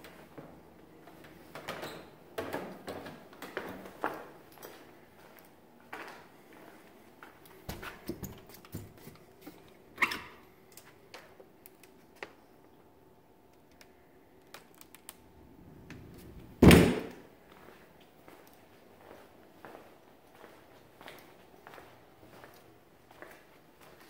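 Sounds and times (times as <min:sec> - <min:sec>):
loud thump: 0:16.6 - 0:17.1.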